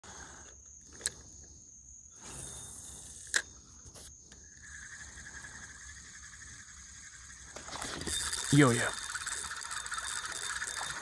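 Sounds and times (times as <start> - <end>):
high-pitched insect drone: 0.1 - 11.0.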